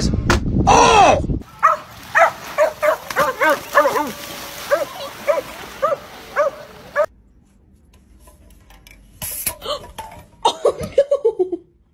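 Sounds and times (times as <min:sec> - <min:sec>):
dog barking: 0:01.6 - 0:07.1.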